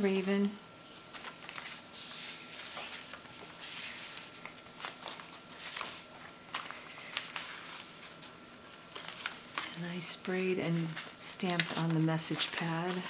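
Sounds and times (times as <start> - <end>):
paper pages rustling: 0.9 - 8.3, 8.9 - 13.0.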